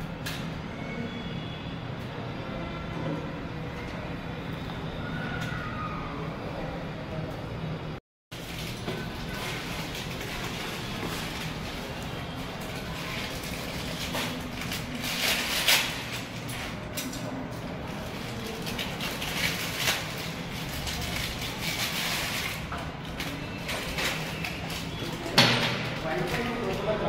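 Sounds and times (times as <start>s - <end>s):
plastic packaging crinkling: 8.3s - 27.0s.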